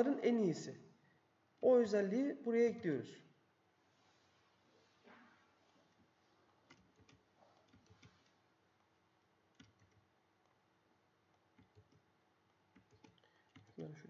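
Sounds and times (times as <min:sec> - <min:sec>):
computer mouse clicks: 0:06.6 - 0:08.4, 0:09.5 - 0:10.6, 0:11.3 - 0:13.9.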